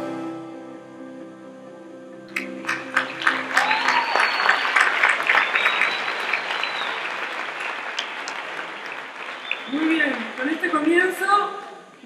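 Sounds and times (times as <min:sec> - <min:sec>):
audience applauding: 0:02.3 - 0:11.4.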